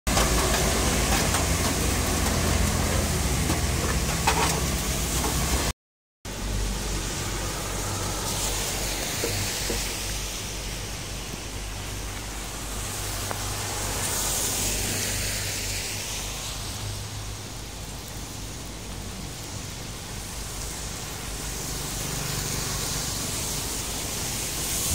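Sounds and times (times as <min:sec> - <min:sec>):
rain on wet street: 0:00.1 - 0:05.7, 0:06.3 - 0:24.9
tyres swishing on wet road: 0:00.1 - 0:05.7, 0:06.3 - 0:24.9
vehicle passing: 0:21.5 - 0:24.9.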